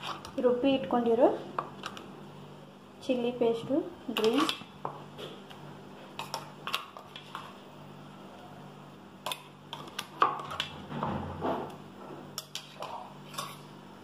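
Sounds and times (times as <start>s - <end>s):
faint steady hum: 0.0s - 14.0s
metal spoon scraping steel plate: 12.4s - 13.7s.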